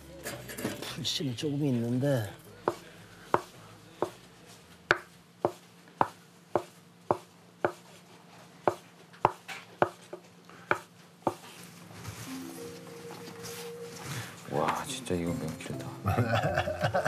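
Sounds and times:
knife chopping on wooden board: 2.7s - 4.2s, 4.9s - 7.9s, 8.6s - 11.4s.

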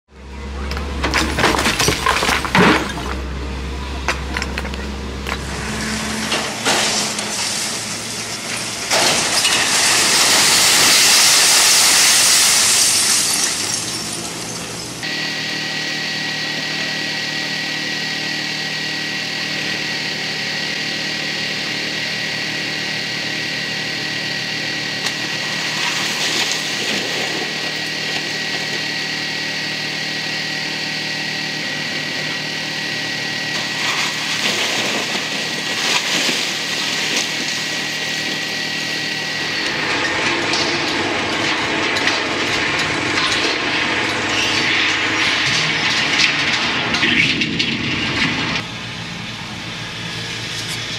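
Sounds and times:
heavy machinery whining: 0.1s - 50.9s
concrete cracking: 0.7s - 3.3s, 6.4s - 14.9s
masonry crashing: 0.7s - 15.0s, 24.9s - 28.8s, 33.6s - 48.6s.

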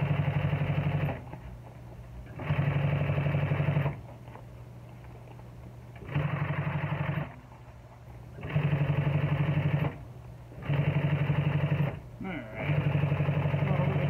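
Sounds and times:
sewing machine motor humming: 0.0s - 1.4s, 2.2s - 4.1s, 6.0s - 7.4s, 8.3s - 14.0s
sewing machine stitching leather: 0.0s - 1.4s, 2.2s - 4.0s, 6.0s - 7.4s, 8.3s - 12.0s, 12.6s - 14.0s.

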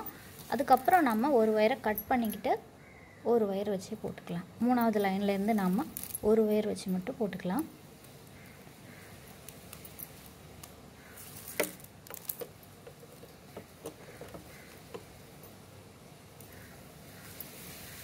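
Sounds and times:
plastic strips rustling and clicking: 9.2s - 15.1s.

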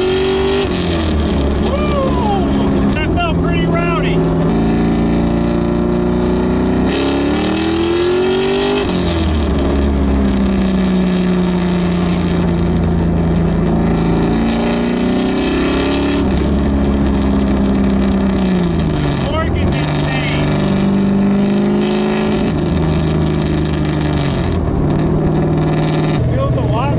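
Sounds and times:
car engine accelerating: 0.0s - 26.9s.

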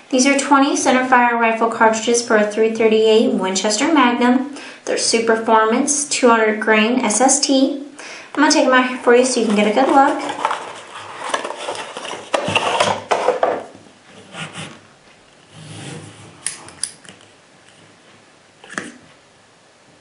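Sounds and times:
cardboard box scraping and rustling: 9.4s - 13.4s, 15.5s - 16.4s.

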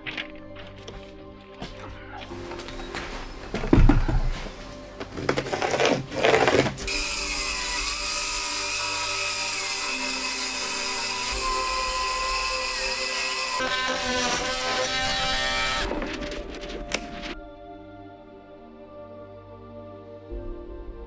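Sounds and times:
circular saw cutting: 6.1s - 15.9s.

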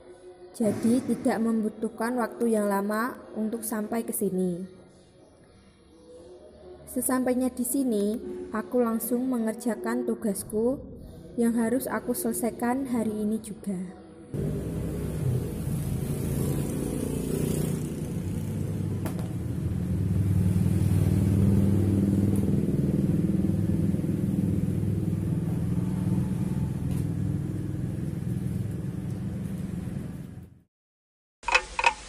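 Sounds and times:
vehicle engine rumbling: 14.4s - 17.1s, 17.8s - 30.6s.

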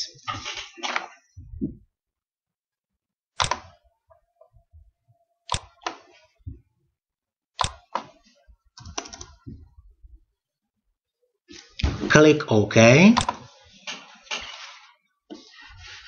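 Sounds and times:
mouse and keyboard clicks: 3.4s - 3.7s, 5.5s - 6.0s, 7.6s - 8.1s, 8.8s - 9.4s.

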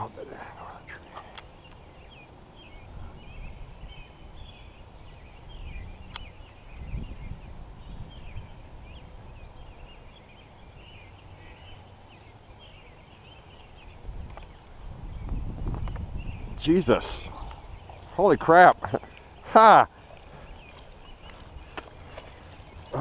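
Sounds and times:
birds chirping: 0.0s - 23.0s.

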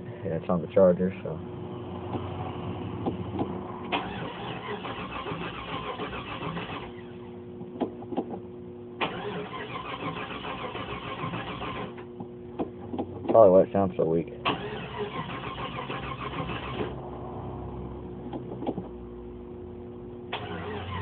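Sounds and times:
starter cranking engine: 3.9s - 7.0s, 9.0s - 12.0s, 14.4s - 17.0s, 20.3s - 21.0s.

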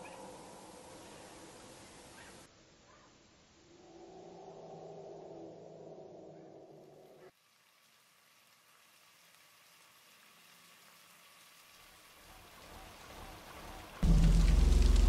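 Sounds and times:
faint hiss: 0.0s - 12.9s
loud low hum with hiss: 14.0s - 15.0s.

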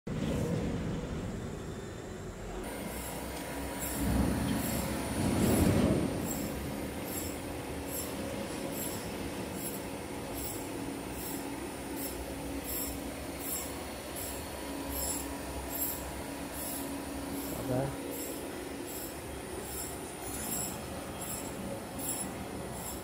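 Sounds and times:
lathe humming: 2.6s - 23.0s.

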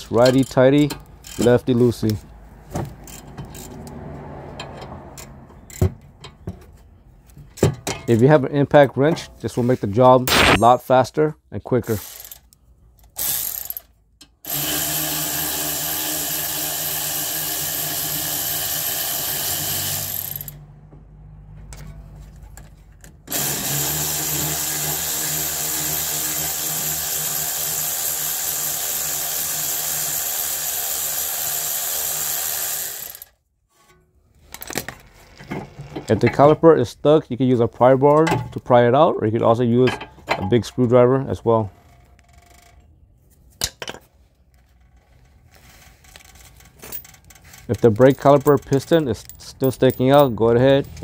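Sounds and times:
cordless impact wrench running: 13.2s - 20.6s, 23.3s - 33.3s.

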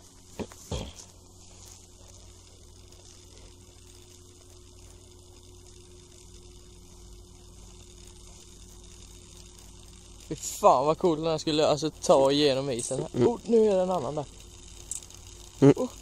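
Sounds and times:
faint low hum: 0.0s - 16.0s
light hiss: 0.0s - 16.0s
thin steady tone: 0.0s - 16.0s.

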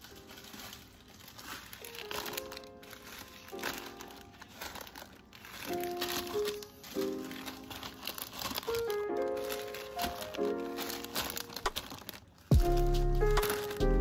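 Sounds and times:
background music: 0.0s - 14.0s
plastic wrappers crinkling: 0.0s - 14.0s.

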